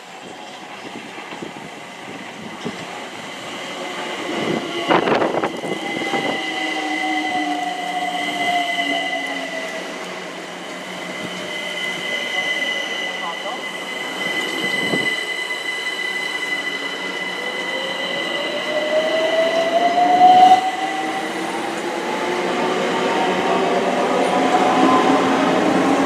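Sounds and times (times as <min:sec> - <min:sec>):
train rushing past: 0:00.3 - 0:26.0.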